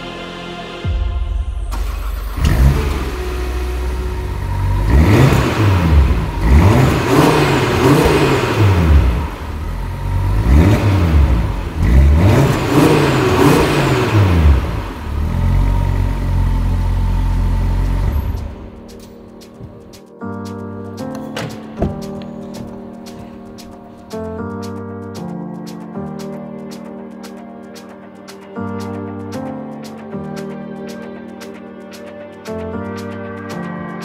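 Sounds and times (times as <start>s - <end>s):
car engine revving: 1.7s - 18.8s.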